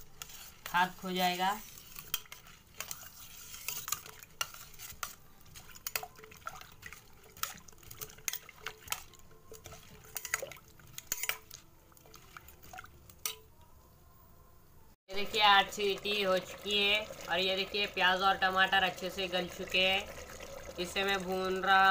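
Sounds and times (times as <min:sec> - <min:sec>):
ladle clinking in steel bowl: 0:01.9 - 0:13.5
water sloshing: 0:03.7 - 0:13.4.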